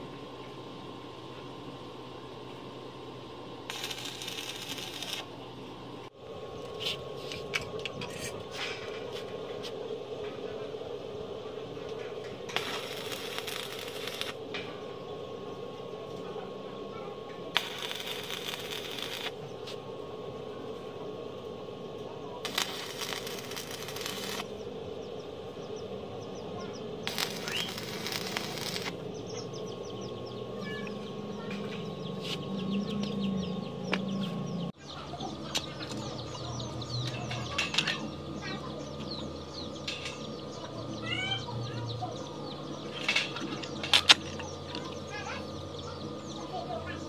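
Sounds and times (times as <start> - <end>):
welding arc crackling: 3.6 - 6.2, 11.9 - 14.4, 17.5 - 19.8, 22.4 - 24.6, 26.6 - 29.2
birds calling: 21.6 - 47.0.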